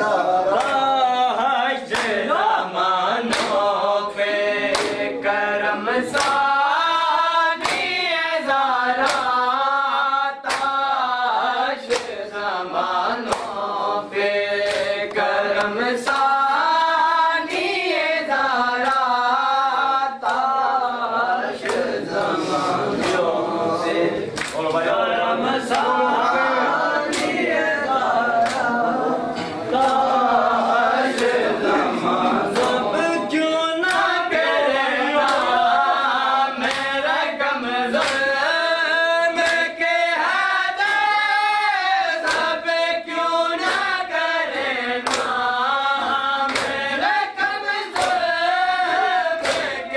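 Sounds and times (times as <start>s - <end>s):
men chanting in unison: 0.0s - 49.9s
hands slapping chests: 0.5s - 0.9s, 1.9s - 2.3s, 3.3s - 3.7s, 4.6s - 5.2s, 6.1s - 6.6s, 7.6s - 8.0s, 9.0s - 9.5s, 10.4s - 11.0s, 11.8s - 12.2s, 13.2s - 13.7s, 14.6s - 16.4s, 18.8s - 19.2s, 20.2s - 20.6s, 21.6s - 23.4s, 24.3s - 24.9s, 25.6s - 26.0s, 27.0s - 27.5s, 28.3s - 30.2s, 31.0s - 31.6s, 32.4s - 32.9s, 33.8s - 34.3s, 35.2s - 35.7s, 36.6s - 37.1s, 37.9s - 38.6s, 39.4s - 39.7s, 40.8s - 41.2s, 42.2s - 42.7s, 43.6s - 45.6s, 46.2s - 48.4s, 49.0s - 49.9s.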